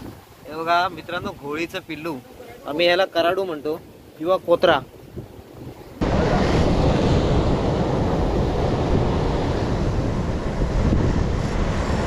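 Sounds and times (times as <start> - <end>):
wind buffeting microphone: 2.8 - 12.0
surf breaking on rocky shore: 5.7 - 12.0.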